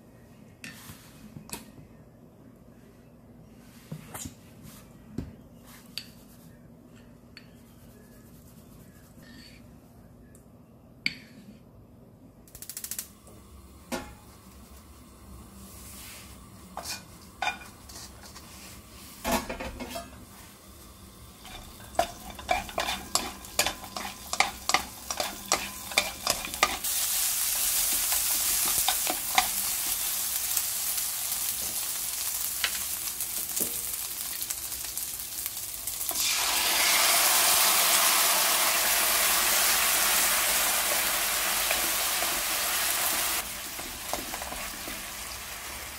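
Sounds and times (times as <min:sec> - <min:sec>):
frying sizzle: 0:12.6 - 0:45.9
spatula scraping frying pan: 0:21.4 - 0:26.9.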